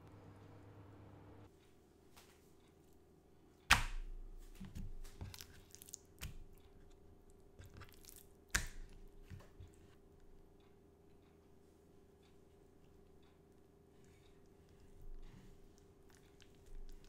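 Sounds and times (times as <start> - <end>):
chicken slapped on cutting board: 3.7 - 4.0.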